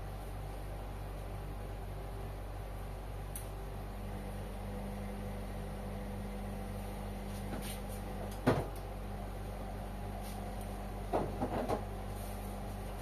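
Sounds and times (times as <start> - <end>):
washing machine motor hum: 0.0 - 13.0.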